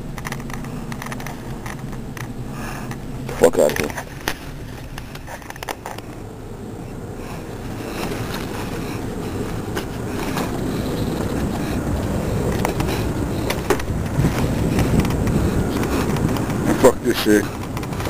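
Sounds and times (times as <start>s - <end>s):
camera handling rustle: 3.6s - 6.2s.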